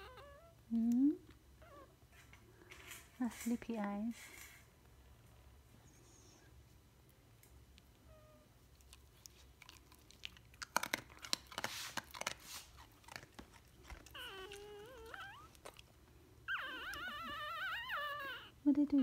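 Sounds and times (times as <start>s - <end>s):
puppy whining: 0.0s - 0.8s, 1.6s - 2.3s, 7.9s - 10.1s, 10.8s - 19.0s.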